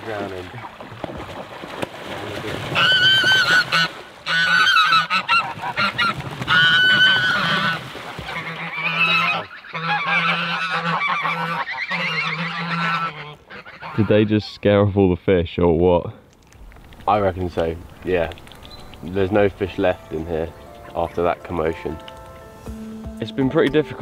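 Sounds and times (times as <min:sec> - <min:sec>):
birds splashing and flapping wings: 0:00.0 - 0:13.7
geese honking: 0:02.8 - 0:14.6, 0:17.8 - 0:23.2.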